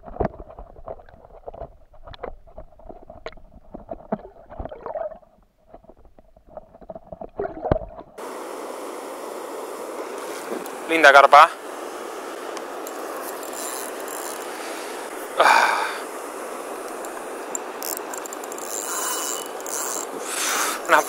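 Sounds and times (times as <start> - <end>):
muffled underwater knocks and gurgles: 0.0 - 8.2
waterfall rushing hiss: 8.2 - 17.8, 18.8 - 21.0.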